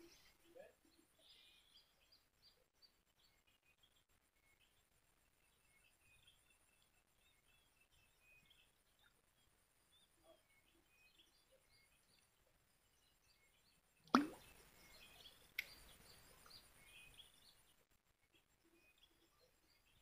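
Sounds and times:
small birds chirping: 0.0 - 20.0
loud plop: 14.1 - 14.5.

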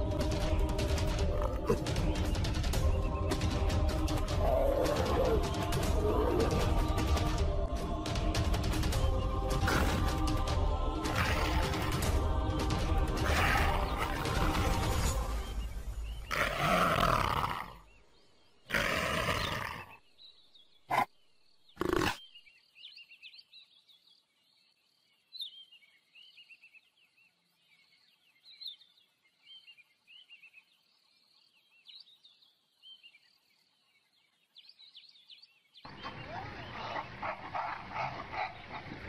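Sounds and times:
wild animal calls: 4.3 - 7.0, 11.1 - 12.0, 13.2 - 15.0, 16.3 - 17.8, 18.7 - 20.0, 20.9 - 21.1, 21.8 - 22.3, 35.9 - 39.0.

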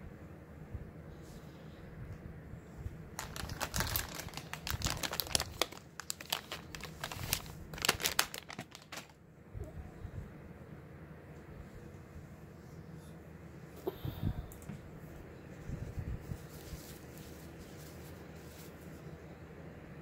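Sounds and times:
plastic wipes pack crinkling: 3.1 - 9.2.

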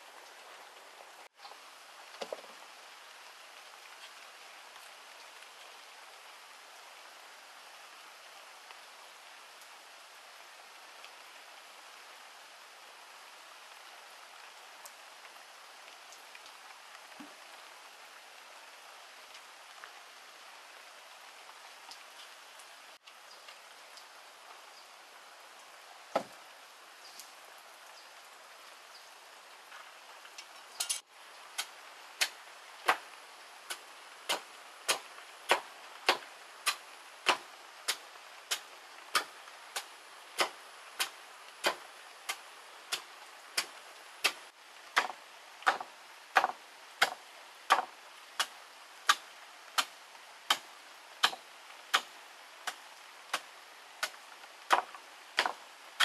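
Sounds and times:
hatchet chopping a log: 34.3 - 38.6, 45.0 - 48.5, 51.2 - 52.1, 54.0 - 55.6.

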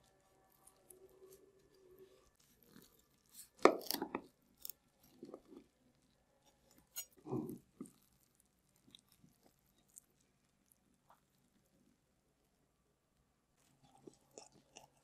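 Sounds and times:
knife cutting crunchy crust: 2.4 - 5.7, 6.5 - 8.3.

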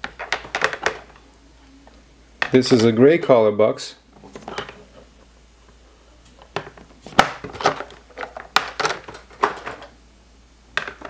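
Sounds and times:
plastic boxes clicking and knocking: 0.0 - 1.2, 4.3 - 4.8, 6.5 - 10.0, 10.8 - 11.0.

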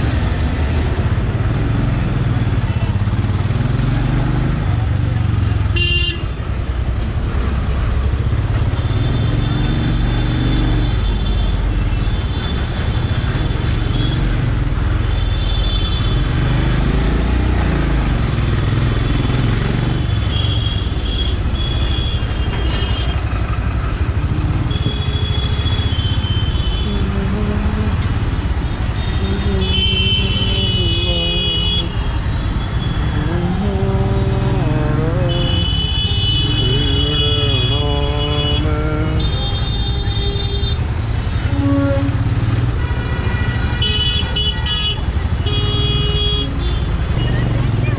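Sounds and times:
vehicle horns tooting: 5.7 - 6.4, 24.6 - 27.4, 28.5 - 33.3, 35.2 - 47.9
motorcycle engine rumbling: 17.5 - 39.3.

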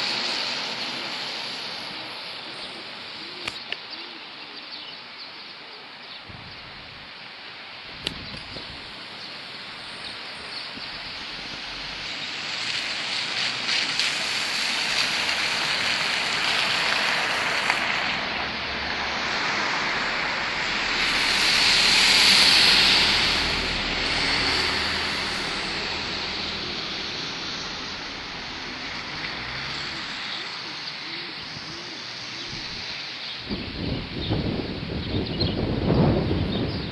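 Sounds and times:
car passing close: 0.0 - 3.6, 8.3 - 33.6
tyres hissing on wet road: 0.0 - 4.9, 5.6 - 35.0.

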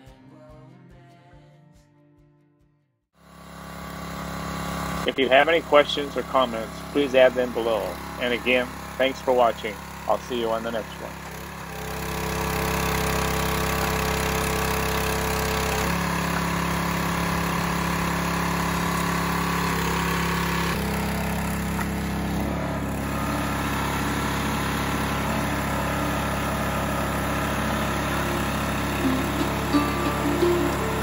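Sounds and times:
small gasoline engine running: 3.2 - 31.0.

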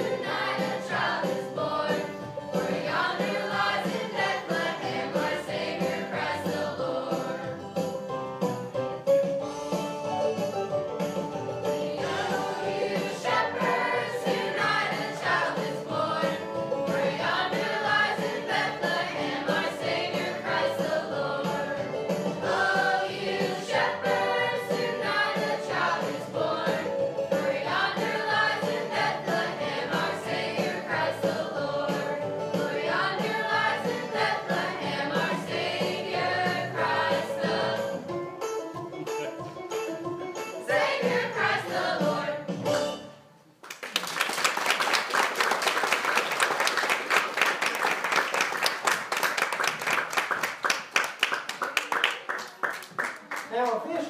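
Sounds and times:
young voices singing together: 0.0 - 7.7, 11.8 - 38.1, 40.6 - 42.5
banjo: 0.0 - 43.3.

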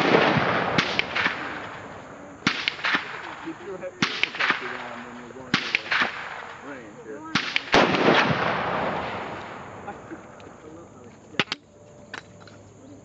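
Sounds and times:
gunshot cracks: 0.0 - 9.9
heavy shot with rolling echo: 0.0 - 10.1.

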